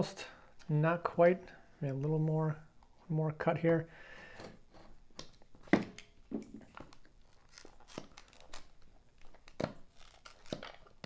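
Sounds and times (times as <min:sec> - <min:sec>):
plastic packaging crinkling and tearing: 0:06.6 - 0:11.0.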